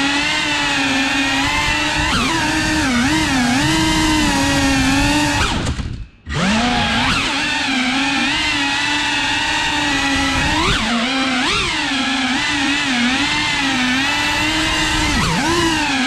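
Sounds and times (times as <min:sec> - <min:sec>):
quadcopter motors whining: 0:00.0 - 0:16.0.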